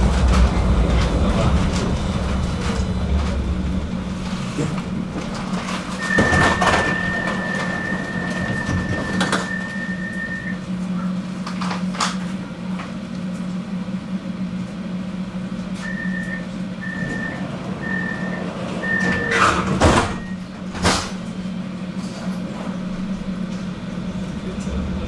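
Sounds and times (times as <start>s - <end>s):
tram interior hum: 0.0s - 25.0s
sliding doors knocking shut: 4.2s - 9.8s, 17.0s - 21.3s.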